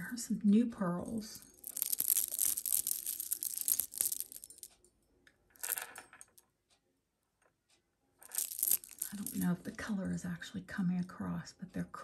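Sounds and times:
jewelry clicking and clinking: 0:01.2 - 0:06.5, 0:08.2 - 0:09.8
plastic packaging rustling: 0:01.6 - 0:04.7, 0:08.3 - 0:09.5.

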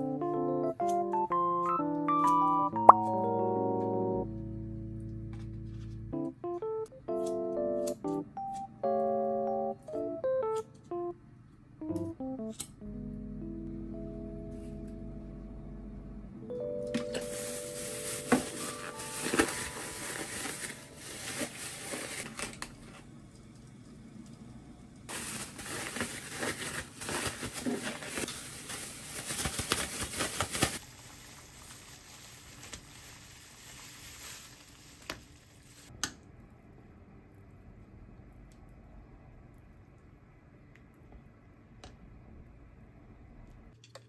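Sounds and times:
plastic bag crinkling: 0:17.2 - 0:23.0, 0:25.1 - 0:35.9
water boiling: 0:30.6 - 0:36.0.

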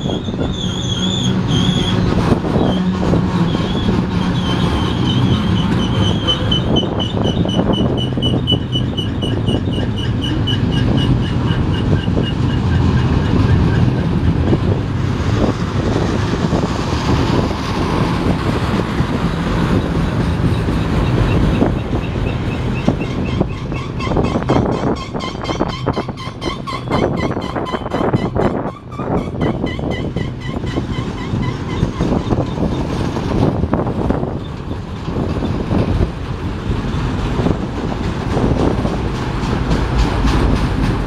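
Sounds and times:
high pulsing squeal: 0:00.0 - 0:14.4, 0:20.5 - 0:32.8
train wheels rumbling on rail: 0:00.0 - 0:41.0
wheels clicking over rail joints: 0:00.0 - 0:41.0.

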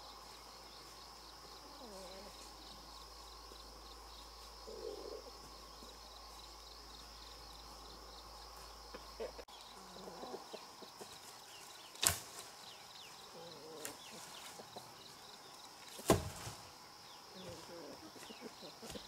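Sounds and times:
high insect drone: 0:00.0 - 0:19.0
chopping blows into wood: 0:16.0 - 0:16.5.

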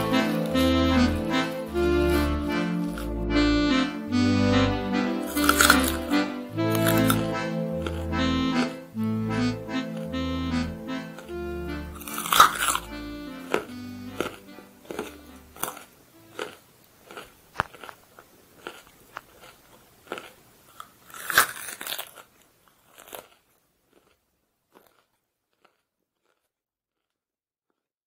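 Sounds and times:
crunching bites of raw vegetable: 0:00.0 - 0:03.4, 0:05.2 - 0:08.7, 0:11.1 - 0:27.9.

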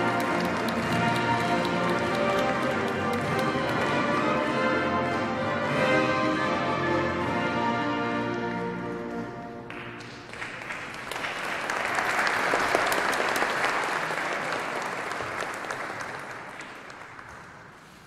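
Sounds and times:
audience applauding: 0:00.0 - 0:05.3, 0:09.7 - 0:18.0.

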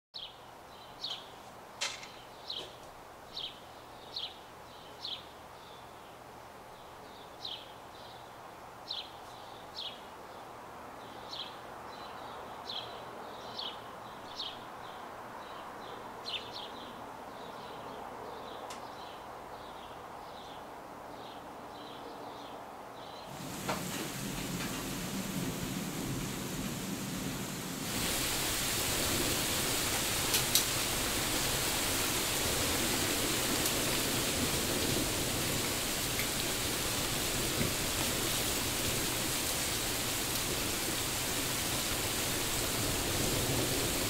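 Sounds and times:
bird chirping: 0:00.2 - 0:08.3
outdoor hiss: 0:00.2 - 0:17.8, 0:22.9 - 0:44.0.

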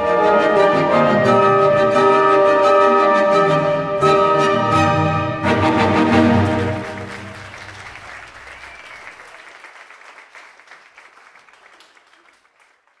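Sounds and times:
audience applauding: 0:05.7 - 0:13.0.

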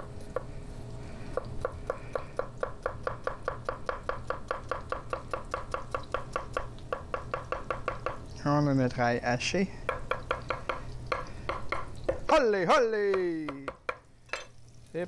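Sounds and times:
knife chopping on wooden board: 0:01.4 - 0:08.2, 0:09.9 - 0:12.3.

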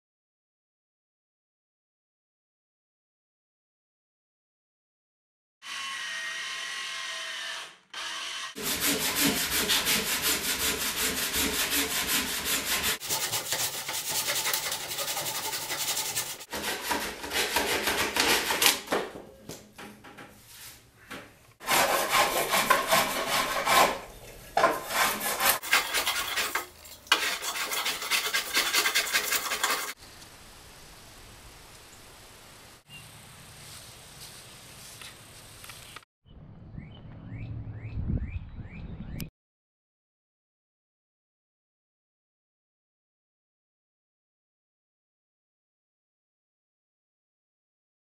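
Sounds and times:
hand tool rasping wood: 0:08.6 - 0:18.8, 0:21.6 - 0:30.0.

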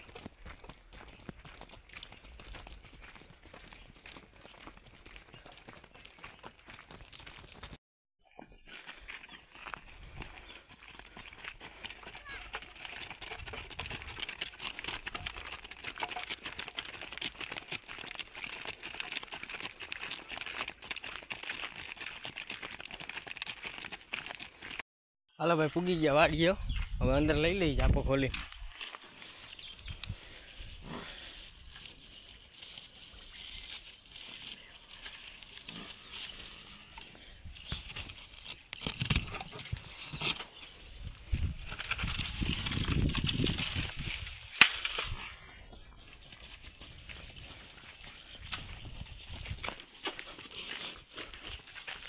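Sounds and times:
hooves crunching on gravel: 0:00.0 - 0:24.8, 0:25.6 - 0:52.0.

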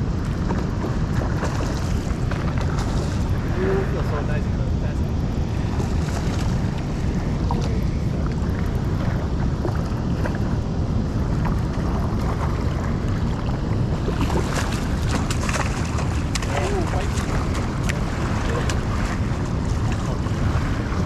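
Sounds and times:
river water rushing: 0:00.0 - 0:21.0
wind buffeting microphone: 0:00.0 - 0:21.0
light clicks and splashes: 0:00.2 - 0:03.3, 0:11.4 - 0:20.7.

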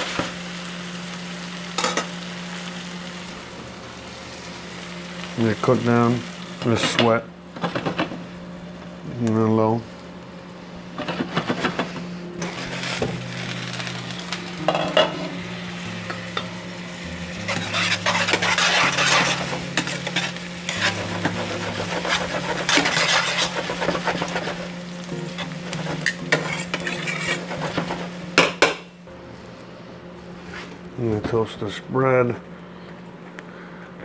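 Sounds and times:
onions sizzling in a skillet: 0:00.0 - 0:07.0, 0:12.4 - 0:29.0
metal tongs scraping a pan: 0:17.3 - 0:24.6, 0:25.4 - 0:28.0.

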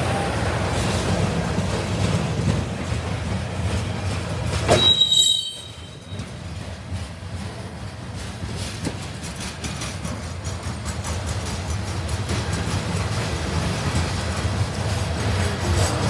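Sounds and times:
freight train rumbling past: 0:00.0 - 0:16.0
train wheel squeal: 0:04.5 - 0:07.6.

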